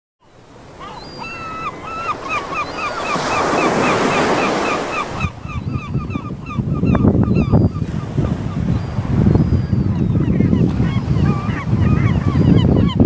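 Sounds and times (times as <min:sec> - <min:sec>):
sea waves washing on shore: 0:00.3 - 0:05.4
gull calling: 0:00.7 - 0:07.9, 0:08.5 - 0:13.0
wind on microphone: 0:02.8 - 0:13.0.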